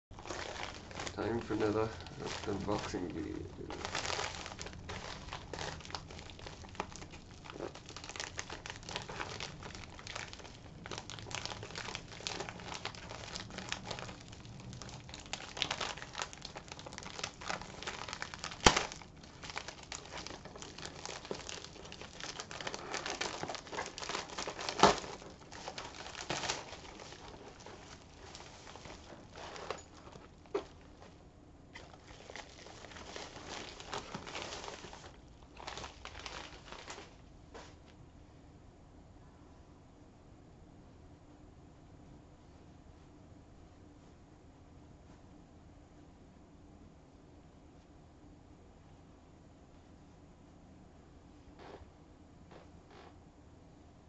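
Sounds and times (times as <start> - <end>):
plastic bag crinkling: 0.1 - 37.7.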